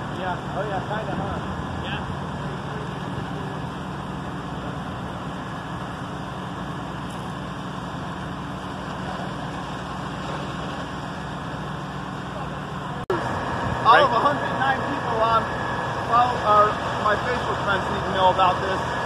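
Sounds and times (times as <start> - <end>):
street traffic: 0.0 - 19.0
vehicle engine droning: 0.0 - 19.0.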